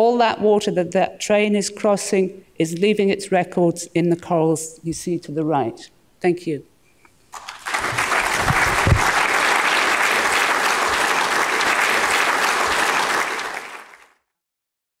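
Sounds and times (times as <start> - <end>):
audience applauding: 7.4 - 14.2.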